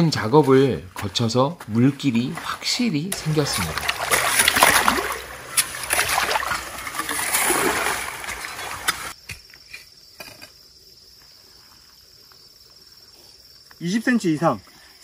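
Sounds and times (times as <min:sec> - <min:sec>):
hoe scraping through muddy water: 0:01.8 - 0:09.2.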